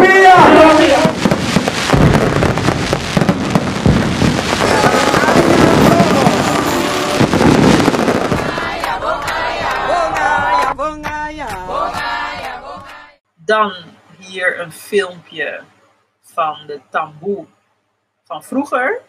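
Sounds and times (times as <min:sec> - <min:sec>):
fireworks bangs and crackling: 0:00.0 - 0:10.7
crowd noise: 0:04.4 - 0:11.0, 0:11.6 - 0:13.2
person singing: 0:08.5 - 0:13.2.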